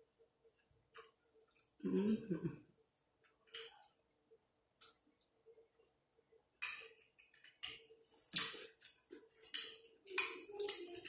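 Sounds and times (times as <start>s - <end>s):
cutlery clinking in a glass bowl: 6.6s - 7.9s, 9.4s - 11.0s.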